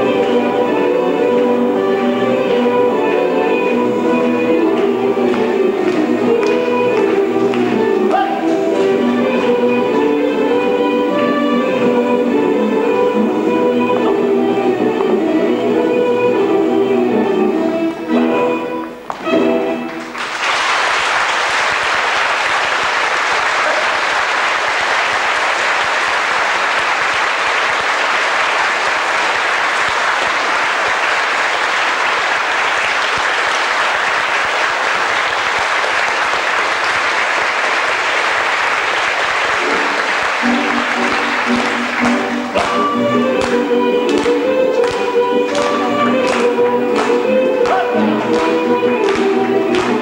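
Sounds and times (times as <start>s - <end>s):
dance music: 0.0s - 20.0s, 39.4s - 50.0s
audience applauding: 5.2s - 9.0s, 19.9s - 50.0s.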